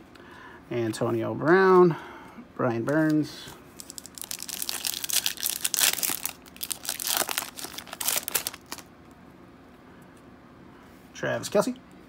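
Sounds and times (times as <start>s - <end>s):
wrapper crinkling and tearing: 3.8s - 8.9s.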